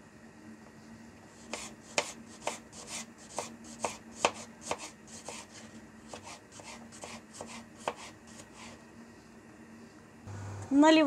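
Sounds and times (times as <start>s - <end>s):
knife chopping on plastic board: 1.5s - 5.5s, 6.1s - 8.5s.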